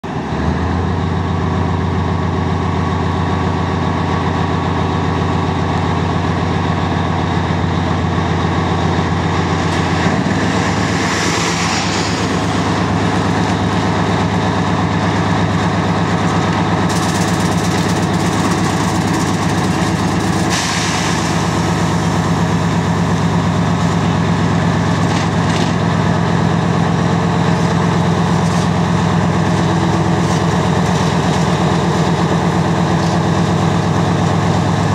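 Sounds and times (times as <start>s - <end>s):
diesel locomotive engine under load: 0.0s - 34.9s
short air hisses: 20.5s - 21.6s.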